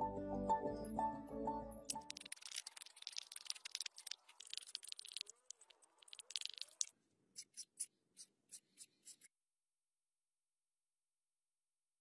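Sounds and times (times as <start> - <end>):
quick scraping strokes: 6.0 - 9.3.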